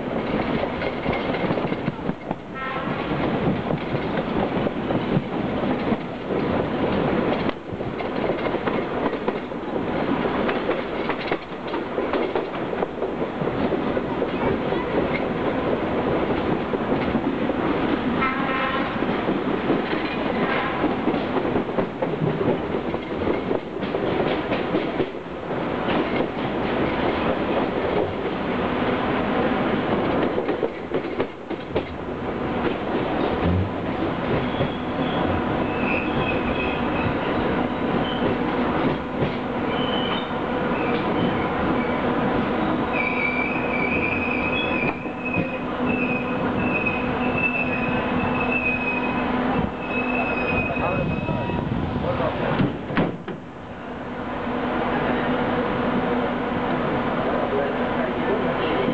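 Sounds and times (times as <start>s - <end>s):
train wheels rumbling on rails: 0.0s - 58.9s
high wavering wheel squeal: 34.4s - 37.4s, 39.7s - 42.0s, 42.9s - 51.6s.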